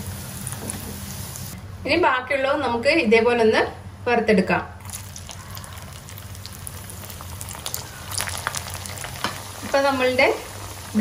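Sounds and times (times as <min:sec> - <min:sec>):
food sizzling in hot oil: 0:00.0 - 0:01.6, 0:04.8 - 0:11.0.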